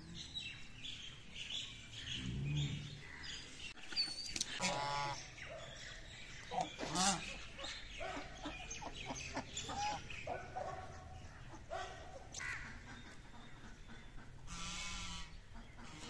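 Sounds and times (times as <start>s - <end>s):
geese and ducks quacking and honking: 4.4s - 5.4s, 6.4s - 16.0s.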